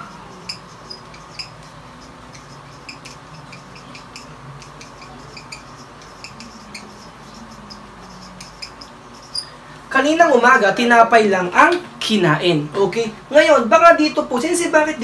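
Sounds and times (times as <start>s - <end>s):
marker pen squeaking on plastic: 0.0s - 9.6s.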